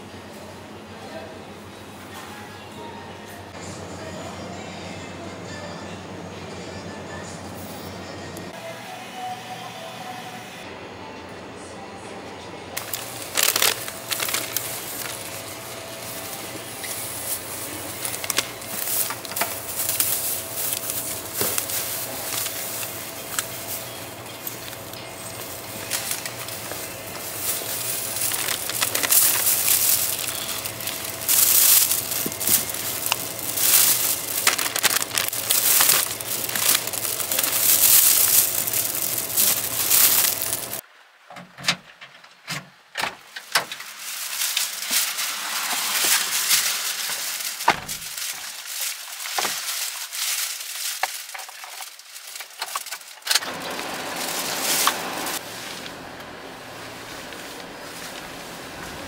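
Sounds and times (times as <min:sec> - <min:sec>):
paper bag crinkling: 0:12.8 - 0:40.8, 0:43.5 - 0:56.0.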